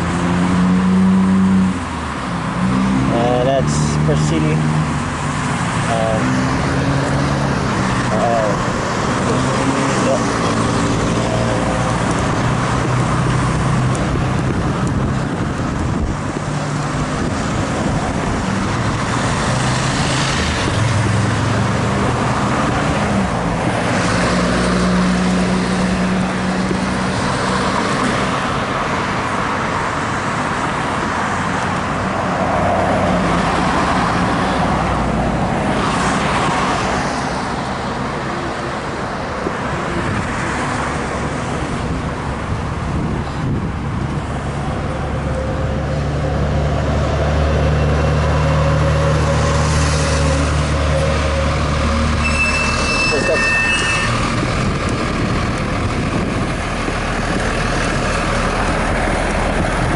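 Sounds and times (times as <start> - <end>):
road traffic: 0.0 - 59.9
vehicles passing close: 0.0 - 59.9.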